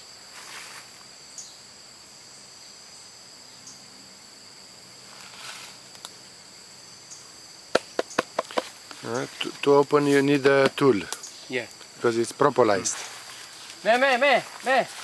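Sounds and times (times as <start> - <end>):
insects chorus: 0.0 - 15.0
sharp knocks and clicks: 7.7 - 8.7.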